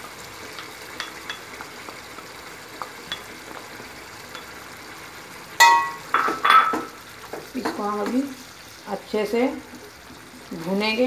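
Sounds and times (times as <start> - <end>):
chicken sizzling in oil: 0.0 - 11.0
wooden spatula ticking on pan: 0.5 - 3.4.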